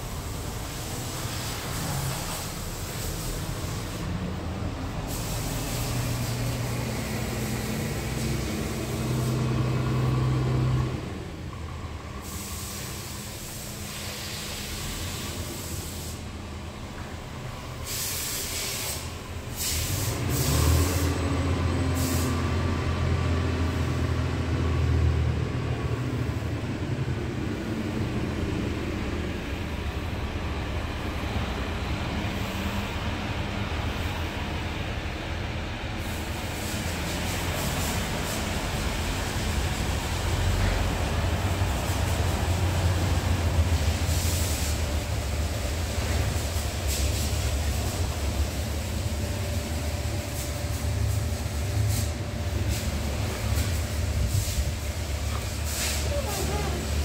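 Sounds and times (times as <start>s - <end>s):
air hissing bursts: 0.0s - 10.6s, 12.1s - 16.4s, 17.7s - 21.3s, 21.9s - 22.7s, 36.0s - 57.0s
diesel engine idling: 0.0s - 57.0s.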